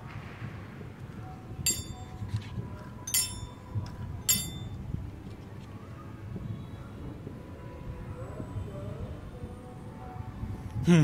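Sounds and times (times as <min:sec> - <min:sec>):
sharp metallic clinks: 0:01.7 - 0:02.2, 0:03.1 - 0:04.8.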